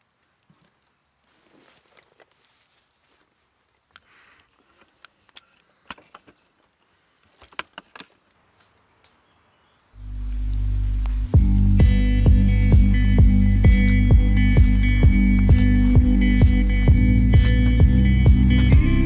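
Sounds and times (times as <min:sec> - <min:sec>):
footsteps on dry leaves: 0:00.0 - 0:03.9, 0:10.0 - 0:19.0
loud music: 0:11.4 - 0:19.0.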